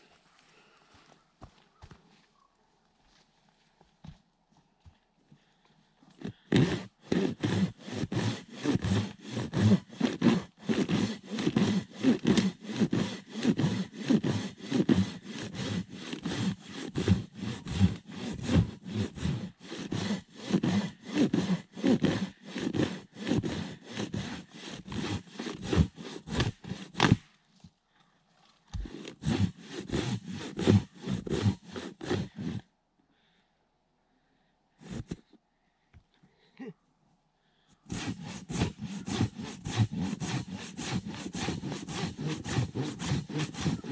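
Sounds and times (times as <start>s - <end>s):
handsaw cutting a tree trunk: 6.2s - 27.3s, 28.7s - 32.7s, 34.8s - 35.2s, 37.8s - 43.9s.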